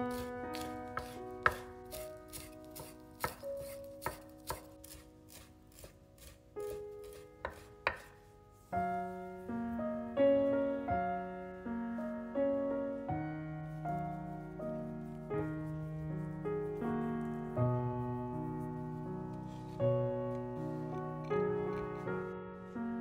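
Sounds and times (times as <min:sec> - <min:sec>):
background music: 0:00.0 - 0:23.0
knife chopping on cutting board: 0:00.1 - 0:08.2.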